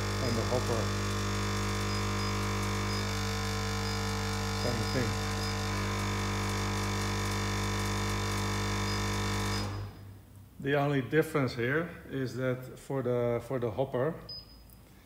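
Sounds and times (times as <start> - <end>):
machine electric hum: 0.0 - 10.6.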